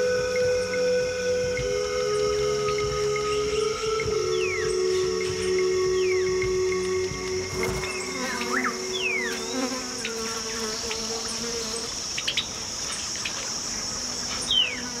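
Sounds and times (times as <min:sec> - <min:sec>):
falling bird whistle: 0:00.0 - 0:11.0
insect chorus drone: 0:00.0 - 0:15.0.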